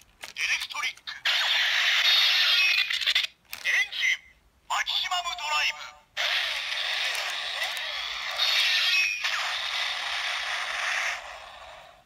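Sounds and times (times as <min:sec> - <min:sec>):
toy electronic sound effect: 0:01.2 - 0:03.4, 0:06.2 - 0:11.8.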